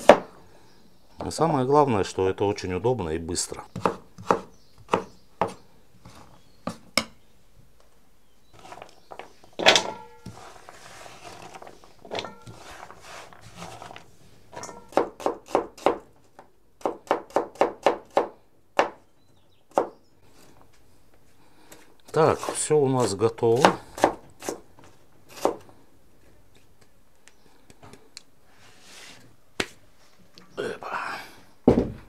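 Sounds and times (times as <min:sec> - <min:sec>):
knife chopping on cutting board: 0:03.7 - 0:05.6.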